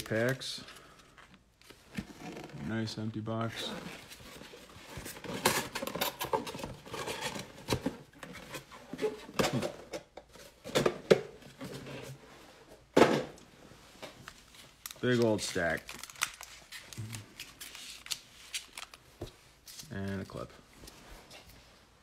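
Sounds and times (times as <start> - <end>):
foil card packs rustling: 14.3 - 20.5.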